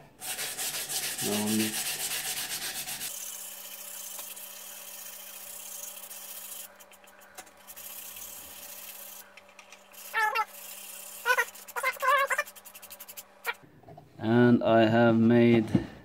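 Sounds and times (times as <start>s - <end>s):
hand sanding wood: 0.2s - 3.2s, 10.0s - 13.6s.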